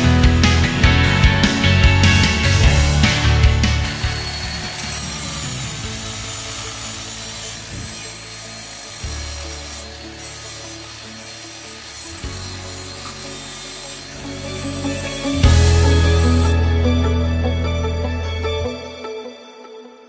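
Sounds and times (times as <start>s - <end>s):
angle grinder sanding metal: 2.1s - 16.6s.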